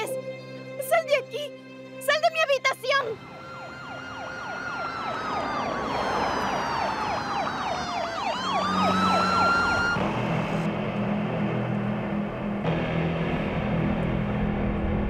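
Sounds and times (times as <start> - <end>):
siren yelp: 3.1 - 10.7
siren wail: 3.2 - 13.8.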